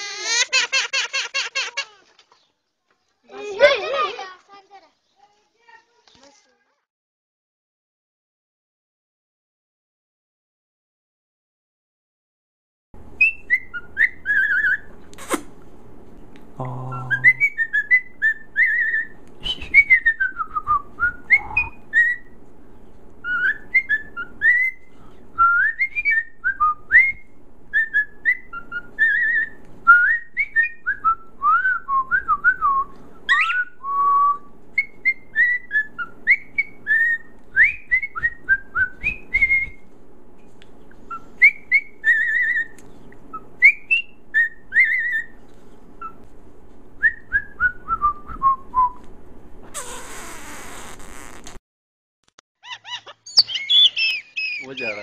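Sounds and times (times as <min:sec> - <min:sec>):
cockatiel whistling: 0:33.3 - 0:33.8, 0:41.1 - 0:45.3, 0:52.8 - 0:55.0.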